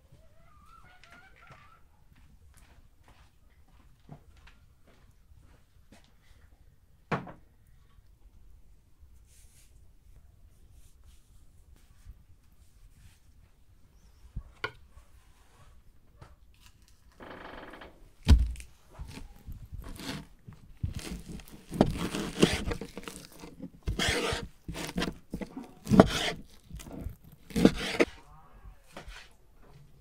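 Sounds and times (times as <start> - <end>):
heavy thump on cutting board: 18.3 - 18.6
knife slicing raw meat: 18.4 - 28.2
blade scraping wooden board: 19.1 - 28.2, 29.0 - 29.3.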